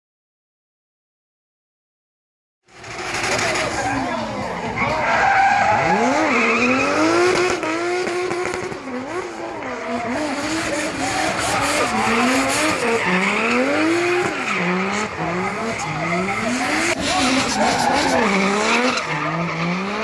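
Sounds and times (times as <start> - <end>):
car engine revving: 2.7 - 20.0
tyres squealing on tarmac: 2.8 - 7.6, 9.6 - 20.0.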